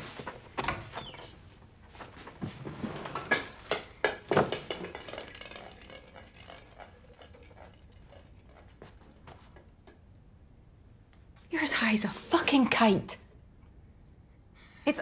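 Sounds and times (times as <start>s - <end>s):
hard objects clattering and knocking: 2.5s - 9.4s.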